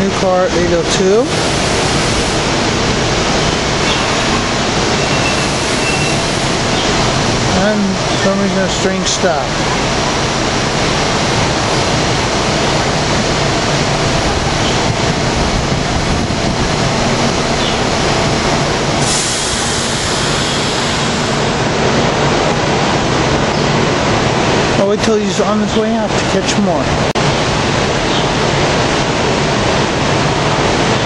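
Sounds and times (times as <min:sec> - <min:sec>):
electric train equipment running: 0:00.0 - 0:24.8
higher hiss: 0:01.2 - 0:09.5, 0:16.6 - 0:21.7.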